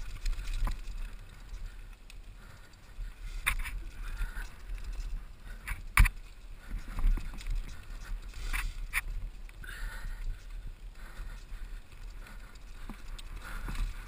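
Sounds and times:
tyre and trail noise: 0:00.0 - 0:14.0
wind rumble on microphone: 0:00.0 - 0:14.0.

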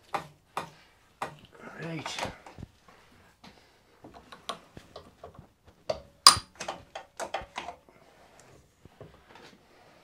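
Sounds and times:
metallic clicks and knocks: 0:04.1 - 0:07.8.

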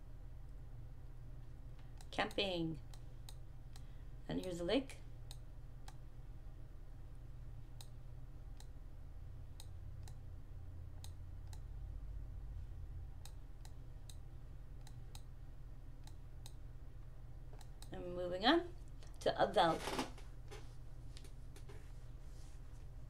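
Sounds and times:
steady low hum: 0:00.0 - 0:23.0
computer mouse clicking: 0:14.8 - 0:15.3.

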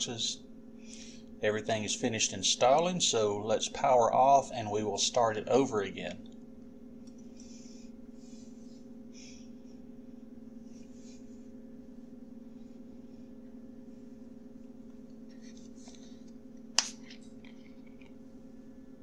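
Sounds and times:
low hum with faint hiss: 0:00.0 - 0:19.0.

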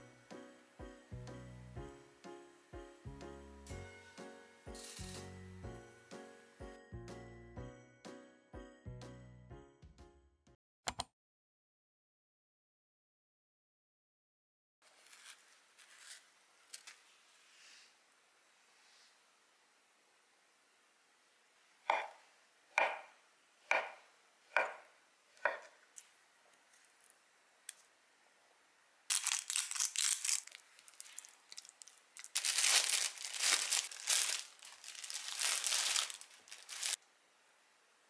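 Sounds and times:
knife chopping: 0:21.9 - 0:22.2, 0:22.8 - 0:25.8
mixing and rustling: 0:29.1 - 0:37.0.

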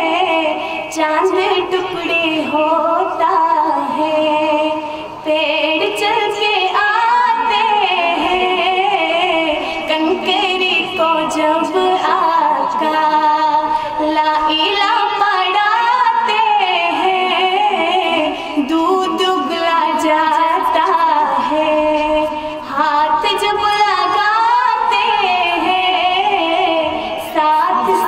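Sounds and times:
person singing devotional song: 0:00.0 - 0:28.0.

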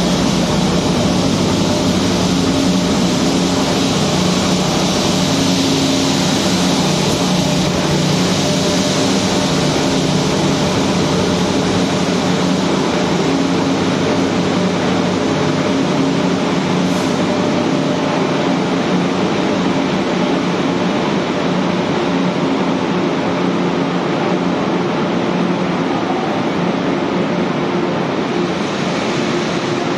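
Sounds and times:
train coaches rumbling past: 0:00.0 - 0:29.9
train engine hum: 0:00.0 - 0:29.9.

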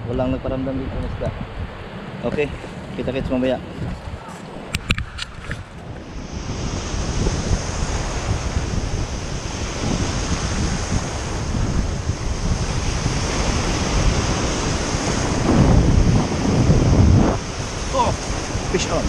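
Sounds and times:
sea waves breaking on rocks: 0:04.0 - 0:19.0.

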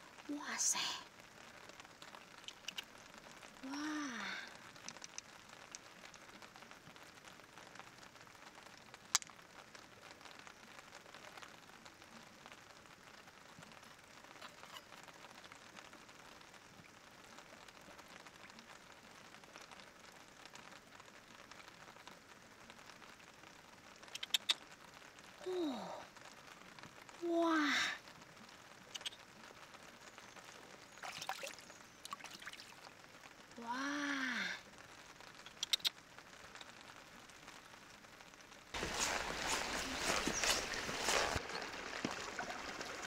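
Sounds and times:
faint steady hiss: 0:00.0 - 0:43.0
person exclaiming: 0:25.4 - 0:26.0, 0:33.6 - 0:34.6
sharp clicks: 0:35.4 - 0:36.0.

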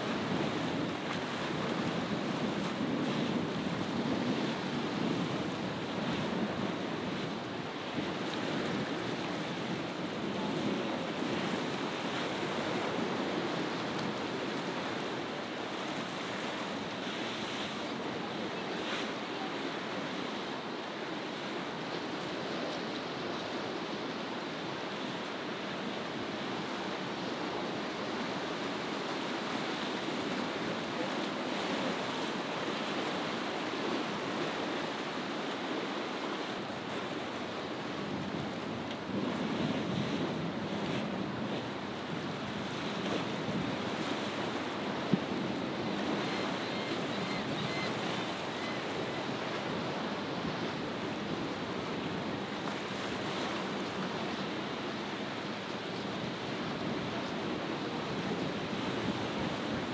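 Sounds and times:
waves breaking: 0:00.0 - 0:59.9
wind buffeting microphone: 0:00.1 - 0:15.2, 0:38.0 - 0:53.5.

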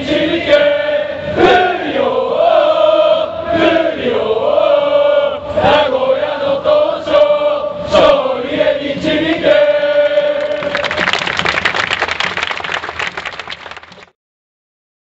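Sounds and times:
crowd chanting: 0:00.0 - 0:11.1
crowd clapping and cheering: 0:09.6 - 0:14.2.

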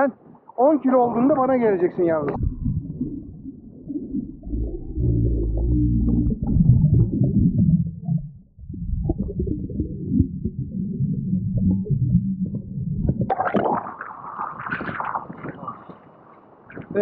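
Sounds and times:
muffled underwater rumble: 0:02.3 - 0:16.0
splashing and sloshing waves: 0:13.1 - 0:17.0.

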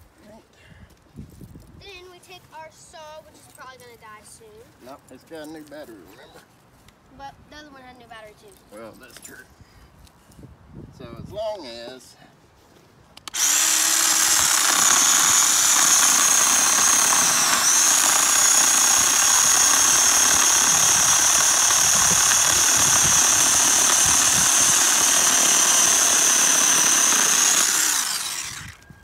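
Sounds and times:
electric chainsaw cutting wood: 0:13.3 - 0:28.9.

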